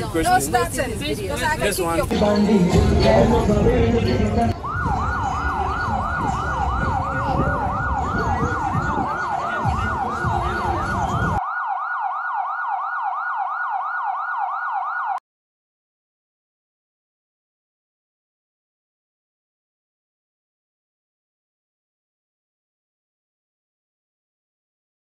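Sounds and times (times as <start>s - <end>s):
electronic siren wailing: 4.5s - 15.2s.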